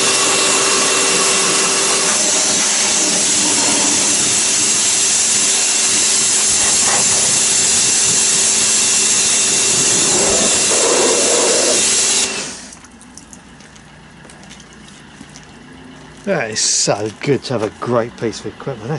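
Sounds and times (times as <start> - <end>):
water jet hissing on metal: 0.0 - 12.8
pressure washer motor whine: 0.0 - 18.9.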